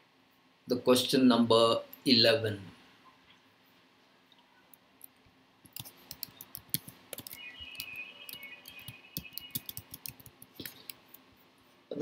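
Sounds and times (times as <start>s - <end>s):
computer keyboard key clicks: 5.7s - 11.0s.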